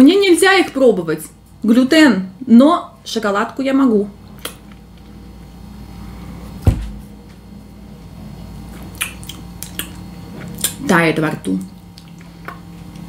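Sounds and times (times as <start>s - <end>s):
low steady hum: 0.0s - 13.0s
dull thump: 6.6s - 7.1s.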